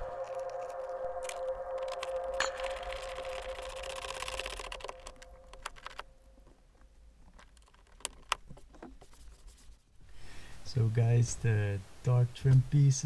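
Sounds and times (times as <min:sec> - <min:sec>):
held tone: 0:00.0 - 0:06.4.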